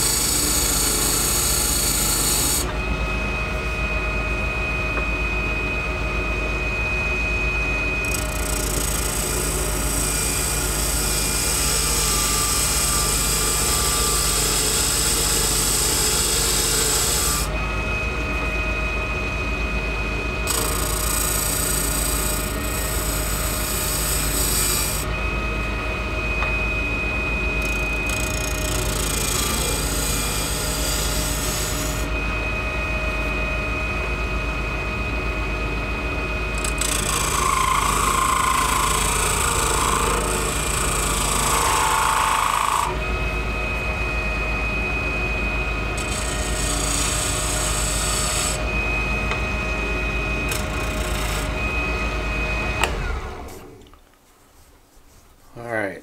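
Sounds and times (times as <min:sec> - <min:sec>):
wood lathe running: 0:00.0 - 0:02.7, 0:08.0 - 0:17.6, 0:20.4 - 0:25.2, 0:27.6 - 0:32.1, 0:36.5 - 0:43.1, 0:45.8 - 0:53.8.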